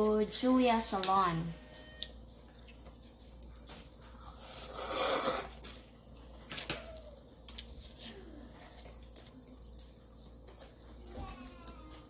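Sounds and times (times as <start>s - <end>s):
noodles slurped: 4.3s - 6.7s.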